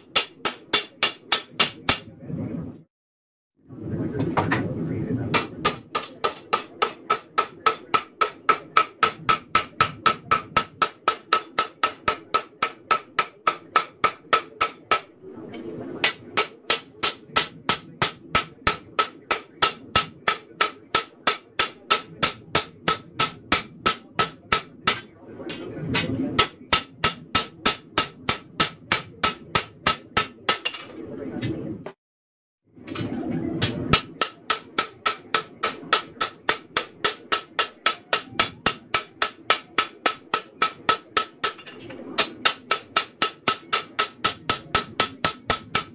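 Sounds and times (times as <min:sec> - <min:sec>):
hammer striking steel on anvil: 0:00.0 - 0:02.1, 0:05.3 - 0:15.1, 0:16.0 - 0:31.0, 0:32.9 - 0:45.9.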